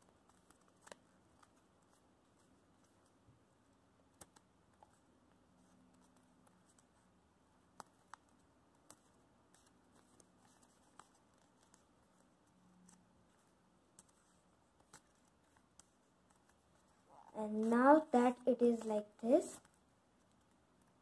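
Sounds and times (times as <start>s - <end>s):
faint low hum: 0.0s - 21.0s
paper being folded: 0.1s - 3.1s, 7.9s - 17.0s.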